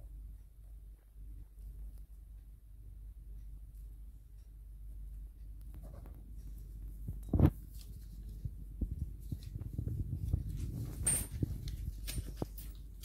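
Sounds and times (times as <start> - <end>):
low room hum: 0.0 - 13.0
painting tools clicking and brushing: 5.6 - 13.0.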